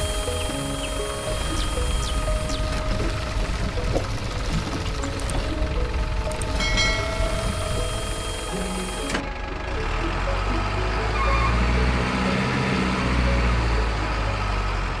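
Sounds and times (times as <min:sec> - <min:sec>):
background music: 0:00.0 - 0:15.0
diesel truck engine rumbling: 0:00.0 - 0:15.0.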